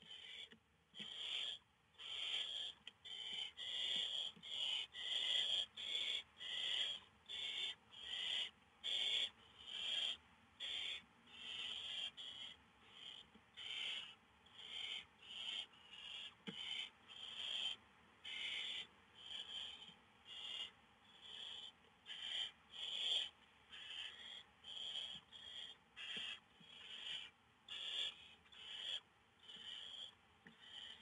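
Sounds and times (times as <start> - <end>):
owlets rasping hissing calls: 1.1 - 31.0.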